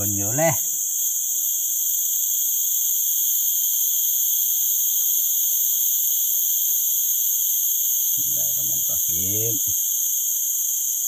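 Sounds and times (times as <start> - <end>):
forest insects droning: 0.0 - 11.0.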